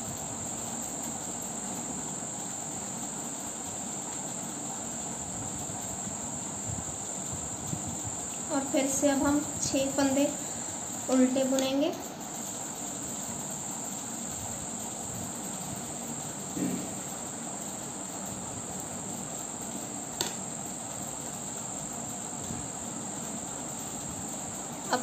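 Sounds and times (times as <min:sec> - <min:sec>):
high-pitched background whine: 0:00.0 - 0:25.0.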